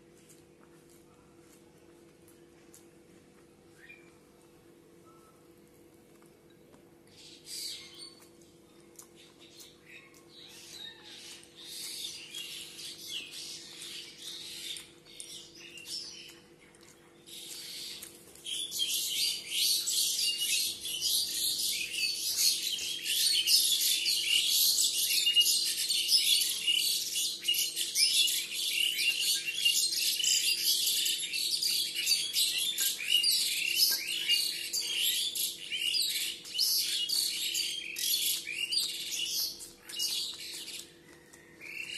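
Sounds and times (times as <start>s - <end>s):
small birds chirping: 7.1s - 41.9s.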